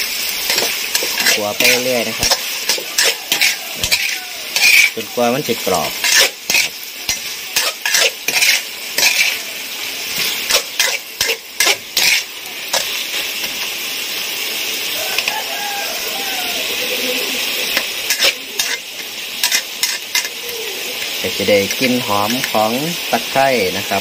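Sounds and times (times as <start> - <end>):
food sizzling: 0.0 - 24.0
metal spatula scraping a wok: 0.2 - 13.6, 17.4 - 23.1.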